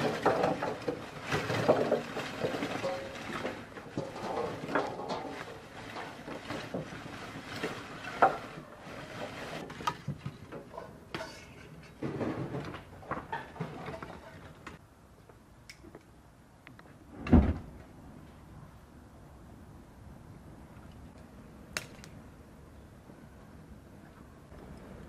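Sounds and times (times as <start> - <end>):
charcoal clattering into metal grill: 0.0 - 8.6.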